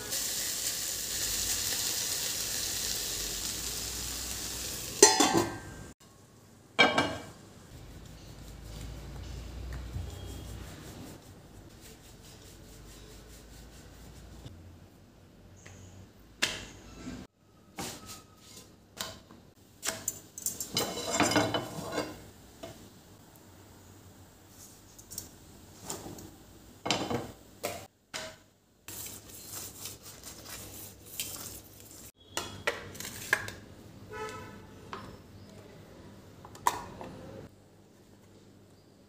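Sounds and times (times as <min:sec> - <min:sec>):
utensils and cookware clinking: 0:04.9 - 0:05.8, 0:06.8 - 0:07.4, 0:17.8 - 0:22.8.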